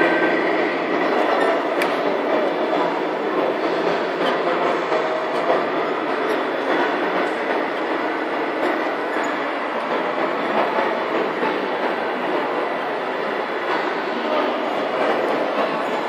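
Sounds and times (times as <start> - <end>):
busy indoor hall din: 0.0 - 16.0.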